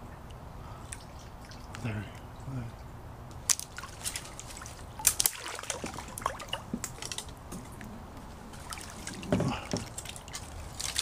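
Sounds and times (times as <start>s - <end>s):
water dripping and trickling: 0.0s - 7.9s, 8.5s - 11.0s
branches clicking and snapping: 3.3s - 7.9s, 8.5s - 11.0s.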